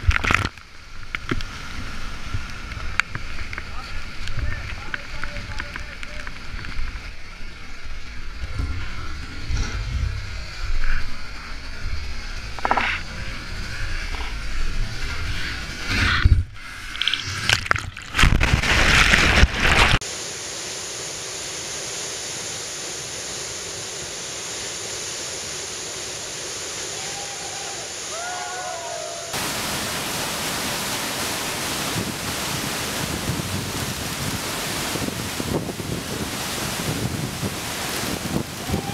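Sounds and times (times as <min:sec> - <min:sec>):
whitewater crashing over kayak: 0:17.0 - 0:20.0, 0:27.0 - 0:38.9
waterfall rushing: 0:25.5 - 0:38.9.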